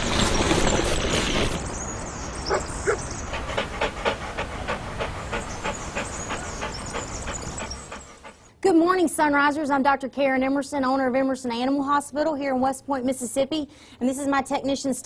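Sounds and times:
dog panting quickly: 2.5 - 8.6.

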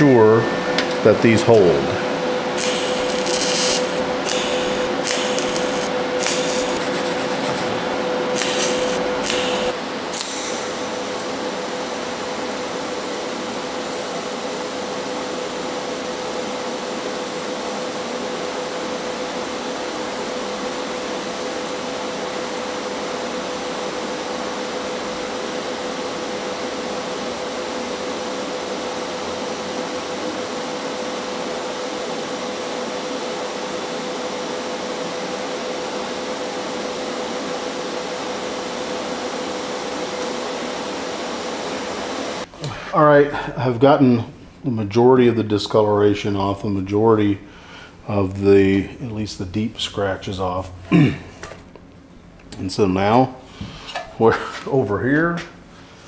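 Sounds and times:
mid-pitched hum: 0.0 - 56.0
welding arc hissing: 2.5 - 42.5.

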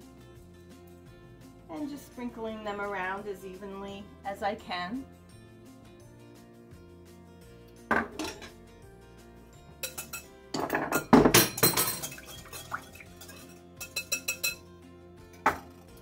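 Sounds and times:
background music: 0.0 - 16.0
knock on kitchenware: 7.9 - 8.4, 10.6 - 12.0, 15.4 - 15.7
dishes clattering: 7.9 - 8.6, 9.8 - 14.6
spoon clinking against glass bowl: 9.8 - 14.6.

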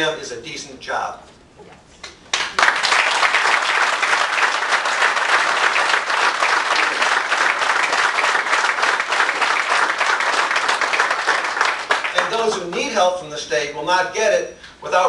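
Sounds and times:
audience applauding: 2.3 - 12.9.

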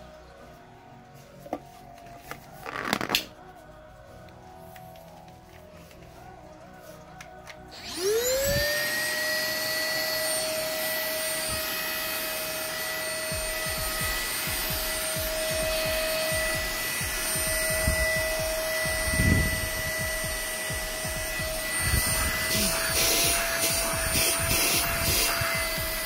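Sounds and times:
stick vacuum motor whining: 7.4 - 26.0.

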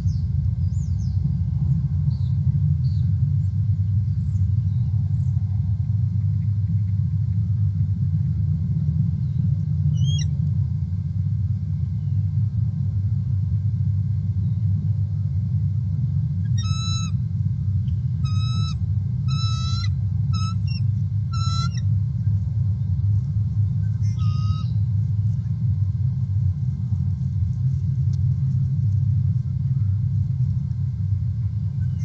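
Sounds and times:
steady low rumble: 0.0 - 32.0
chattering bird calls: 16.5 - 17.2, 18.2 - 21.9, 23.8 - 24.8.

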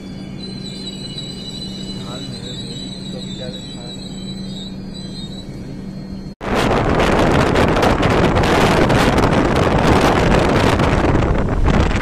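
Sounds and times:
passenger train rumbling: 0.0 - 12.0
steady hum: 0.0 - 12.0
wind on microphone: 6.4 - 12.0.

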